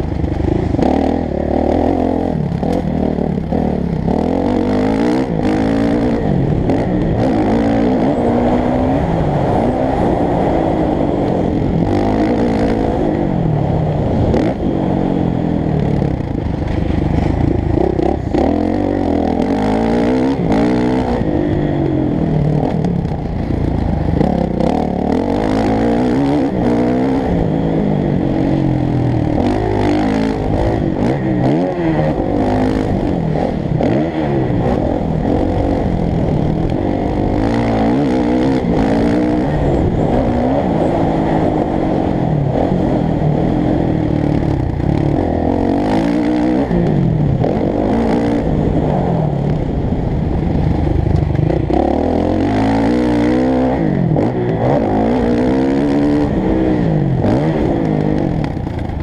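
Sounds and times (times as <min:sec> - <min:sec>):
motocross bike engine revving: 0:00.0 - 0:49.8, 0:50.5 - 0:59.0.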